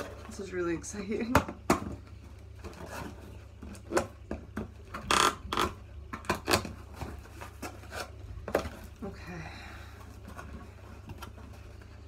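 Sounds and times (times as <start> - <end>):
cardboard rustle: 6.6 - 9.2.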